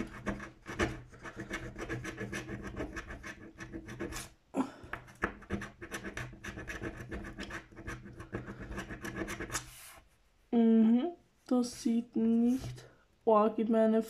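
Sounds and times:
scratch card scraping: 0:00.0 - 0:04.4, 0:05.0 - 0:10.1.

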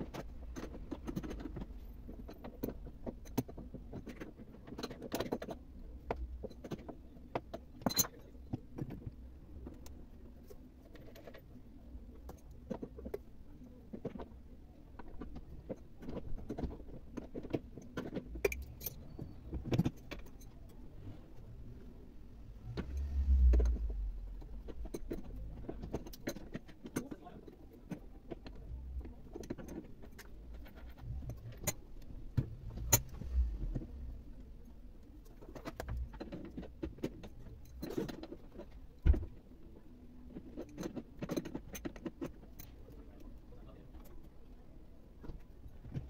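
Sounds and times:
metallic clicks of tools and screws: 0:00.0 - 0:11.5, 0:15.0 - 0:20.8, 0:22.7 - 0:34.3, 0:35.1 - 0:39.0, 0:40.2 - 0:43.3.

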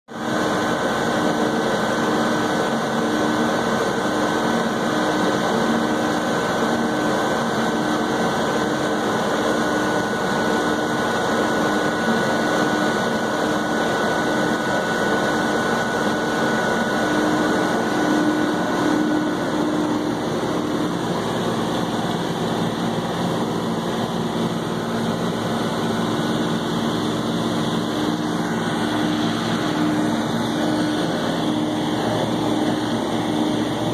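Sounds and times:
tractor diesel engine drone: 0:00.1 - 0:33.9
faint steady whine: 0:00.2 - 0:33.9
forage harvester chopping corn: 0:24.8 - 0:33.9.

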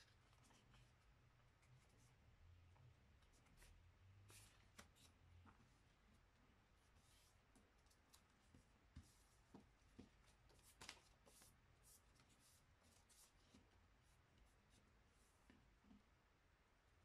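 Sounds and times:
paper rustling and crinkling: 0:10.0 - 0:11.5.

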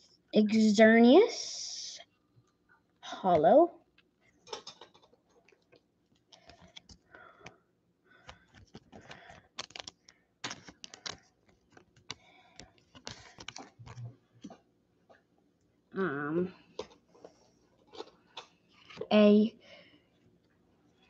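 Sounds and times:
trading cards clicking and rustling: 0:08.2 - 0:14.6.

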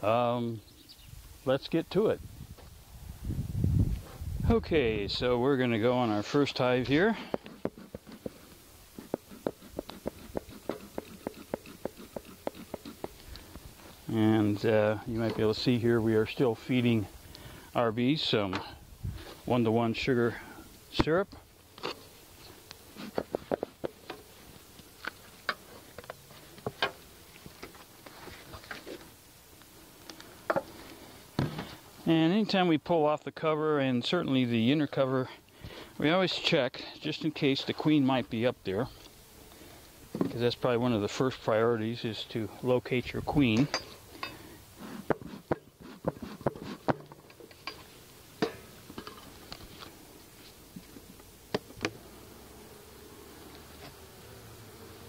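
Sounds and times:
wooden hive and tools clicking: 0:06.2 - 0:13.9, 0:21.7 - 0:31.8, 0:43.5 - 0:50.0, 0:50.8 - 0:52.0
honeybees humming: 0:51.1 - 0:55.0.

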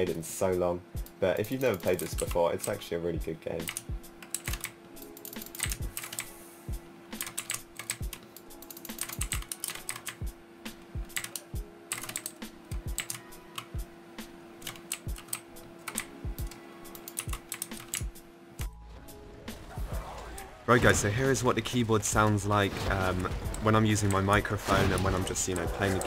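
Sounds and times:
mechanical keyboard keys clacking: 0:03.6 - 0:06.3, 0:07.2 - 0:10.3, 0:11.0 - 0:13.8, 0:14.6 - 0:18.2.

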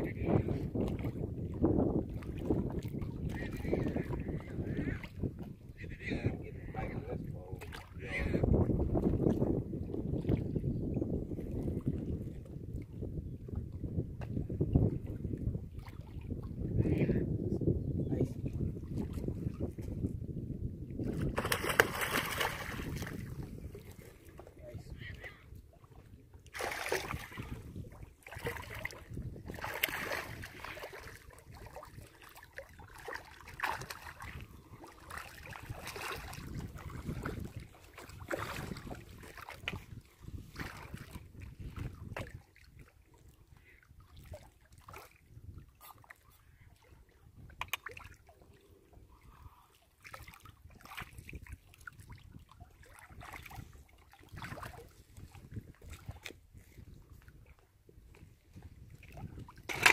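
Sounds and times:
fish thrashing and splashing: 0:21.2 - 0:24.3, 0:26.6 - 0:27.6, 0:28.2 - 0:37.4, 0:59.6 - 0:59.9.

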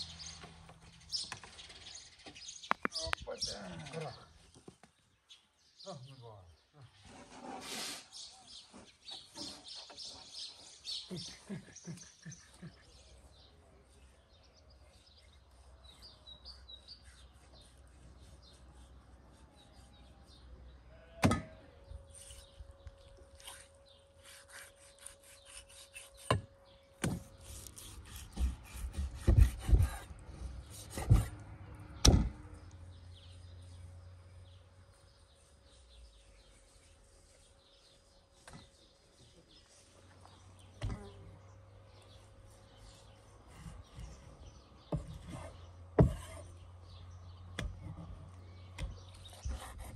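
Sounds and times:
birds chirping: 0:00.0 - 0:07.2, 0:08.0 - 0:49.9
knife cutting meat on wooden board: 0:23.3 - 0:31.4, 0:48.8 - 0:49.9.

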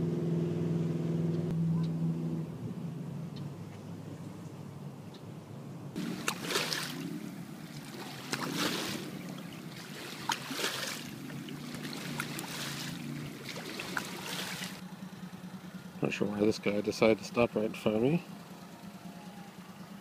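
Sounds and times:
motorboat engine humming: 0:00.0 - 0:20.0
boat wake washing on bank: 0:06.0 - 0:14.8.

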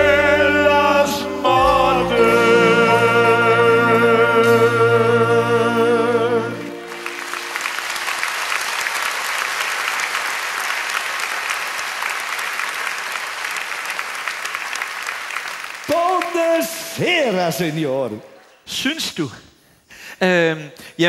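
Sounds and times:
band chord: 0:00.0 - 0:07.6
audience applauding: 0:06.4 - 0:17.4.

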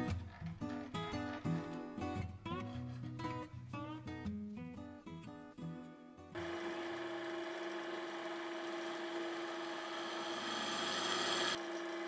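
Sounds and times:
drill press drilling into metal: 0:06.4 - 0:12.0.

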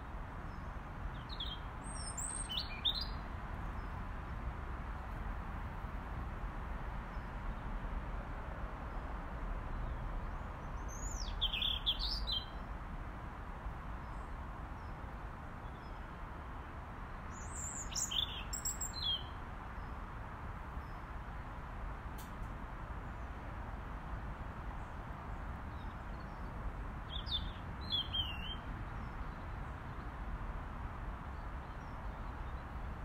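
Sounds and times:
robin singing: 0:00.5 - 0:03.2, 0:10.8 - 0:12.6, 0:17.3 - 0:19.4, 0:27.1 - 0:29.2.

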